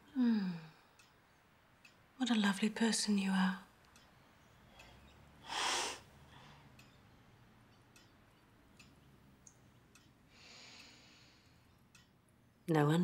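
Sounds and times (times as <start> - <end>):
faint clicks: 0.5 - 12.7
woman breathing: 4.7 - 6.8, 10.3 - 11.7.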